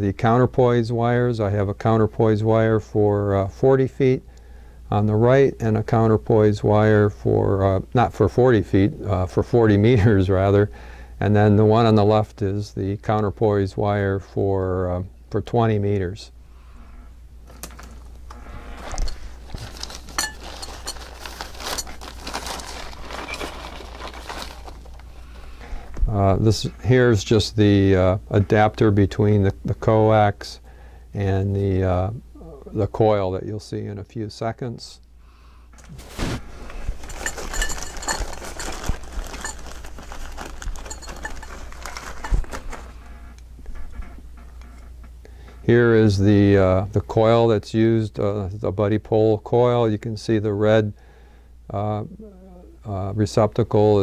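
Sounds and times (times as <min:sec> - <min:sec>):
fabric bag rustling: 0:17.8 - 0:25.3, 0:35.9 - 0:43.0
small hard parts clinking: 0:18.8 - 0:25.1, 0:37.0 - 0:42.9.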